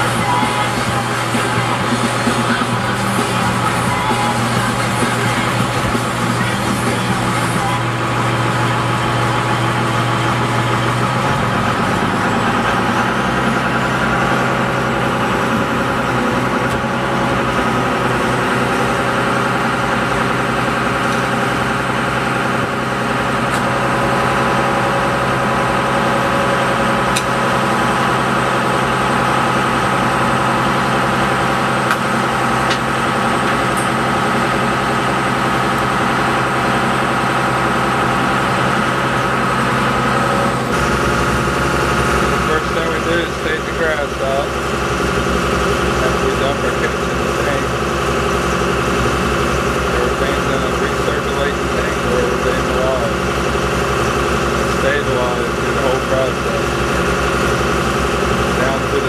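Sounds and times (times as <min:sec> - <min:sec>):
boat engine droning: 0:00.0 - 0:59.0.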